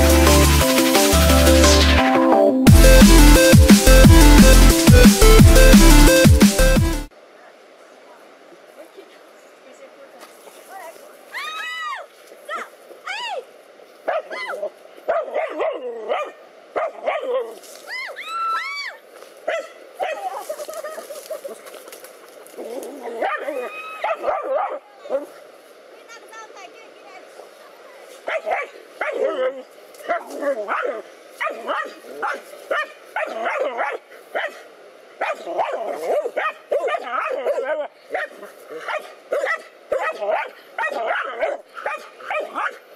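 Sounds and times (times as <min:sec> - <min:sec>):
high arching yelps: 0:11.3 - 0:13.4, 0:14.1 - 0:21.6, 0:22.6 - 0:25.4, 0:28.2 - 0:34.6, 0:35.2 - 0:42.8
dogs barking: 0:14.1 - 0:17.5, 0:19.4 - 0:20.4, 0:23.0 - 0:25.3, 0:28.2 - 0:34.6, 0:35.2 - 0:42.9.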